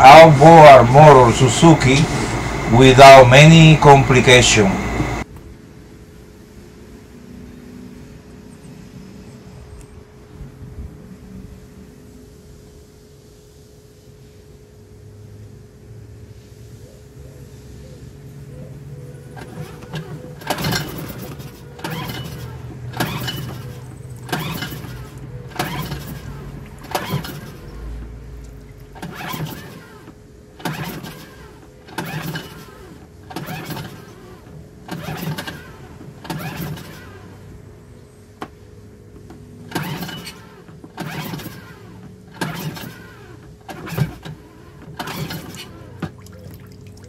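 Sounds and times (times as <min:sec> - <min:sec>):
outboard starter cord rasping: 0:00.0 - 0:05.2, 0:19.3 - 0:37.5, 0:39.7 - 0:47.0.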